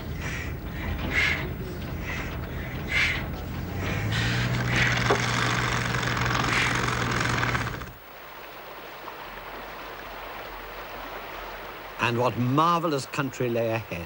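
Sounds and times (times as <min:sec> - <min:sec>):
low hum: 0:00.0 - 0:08.0
flowing river water: 0:00.0 - 0:14.0
pneumatic drill: 0:03.8 - 0:08.0.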